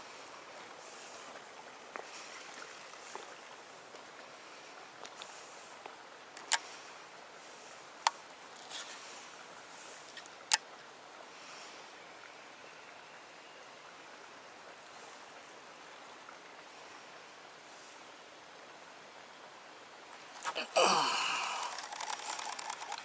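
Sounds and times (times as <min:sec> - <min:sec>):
flowing stream: 0:00.0 - 0:23.0
sharp clicks: 0:21.6 - 0:23.0.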